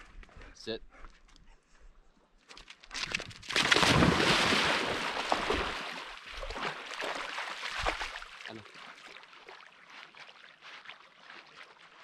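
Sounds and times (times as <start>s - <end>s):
dog splashing in water: 2.9s - 9.7s.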